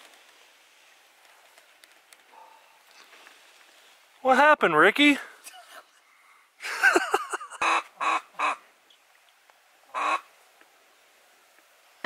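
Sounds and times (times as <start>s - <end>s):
duck quacking: 7.6s - 8.6s, 9.9s - 10.3s.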